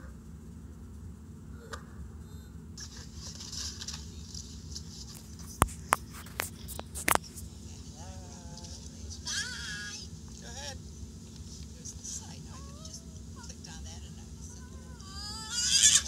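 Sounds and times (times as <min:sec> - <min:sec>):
child sliding on wet plastic: 0:02.8 - 0:05.4.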